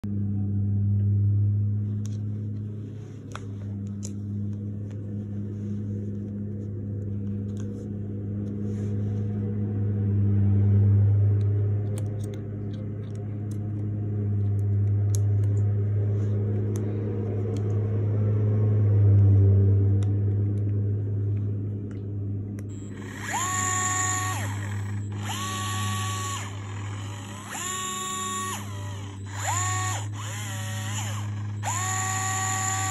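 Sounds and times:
steady low hum: 0:00.0 - 0:32.9
cordless screwdriver motor whine: 0:22.7 - 0:32.9.

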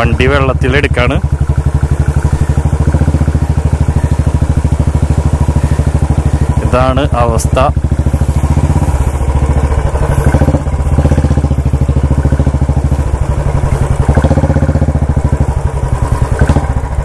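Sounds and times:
motorcycle engine running at low revs: 0:00.0 - 0:17.0.

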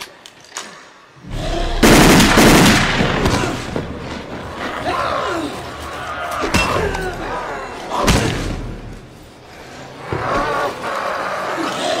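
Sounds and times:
rapid gunfire: 0:01.8 - 0:03.4.

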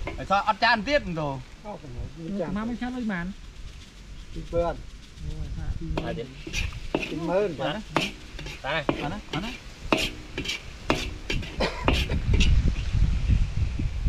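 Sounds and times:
food sizzling in wok: 0:06.0 - 0:12.6
metal ladle scraping wok: 0:06.0 - 0:12.6.

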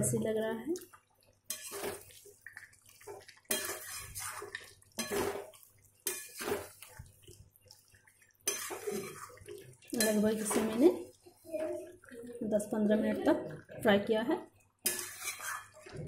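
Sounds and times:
curry frying: 0:00.0 - 0:16.0
metal spatula scraping a pan: 0:01.5 - 0:02.1, 0:03.5 - 0:06.9, 0:08.4 - 0:11.0, 0:14.8 - 0:15.9.

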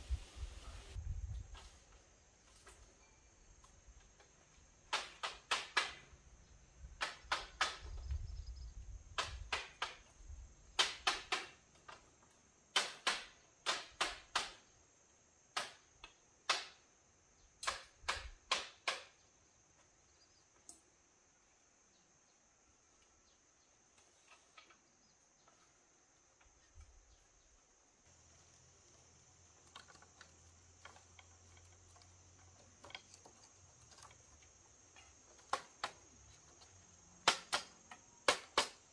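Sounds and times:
tool knocking on bamboo poles: 0:07.0 - 0:08.0, 0:17.6 - 0:19.2
high insect drone: 0:18.8 - 0:38.9.

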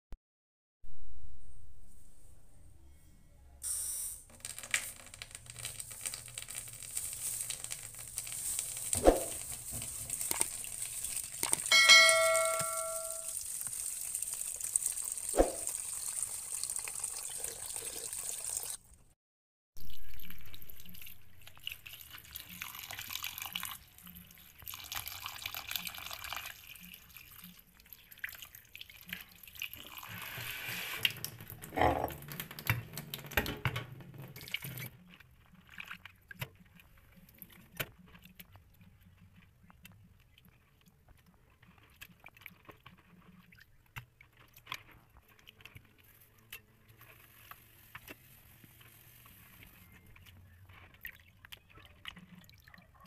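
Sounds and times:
tap water running into basin: 0:04.4 - 0:18.8, 0:20.2 - 0:33.4
shrimp rinsed by hand: 0:04.6 - 0:18.8
short chime: 0:11.7 - 0:13.3.

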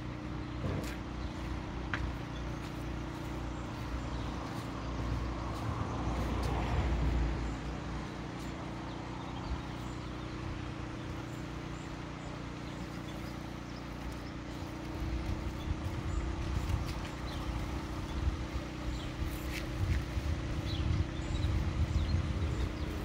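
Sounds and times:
boat engine running: 0:00.0 - 0:23.0.

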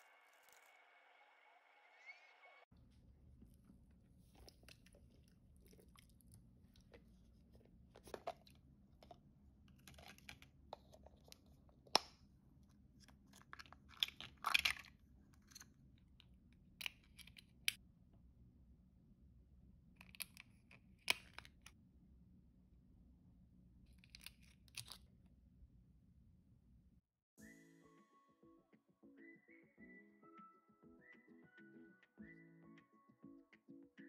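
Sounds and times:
plastic capsule clicks and crackles: 0:08.0 - 0:12.2, 0:13.3 - 0:15.6, 0:20.0 - 0:21.7, 0:24.0 - 0:25.1.

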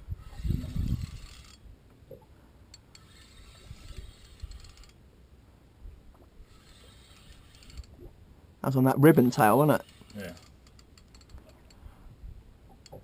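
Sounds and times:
fishing reel gears whirring: 0:00.2 - 0:01.6, 0:02.8 - 0:05.0, 0:06.4 - 0:08.0, 0:09.8 - 0:11.8.

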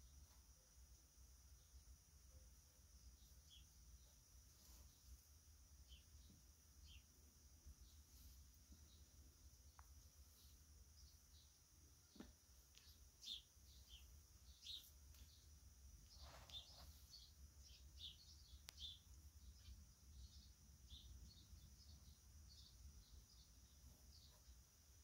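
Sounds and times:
soft rustle: 0:03.0 - 0:17.8, 0:23.6 - 0:25.0
soft high chirps: 0:03.0 - 0:24.6.

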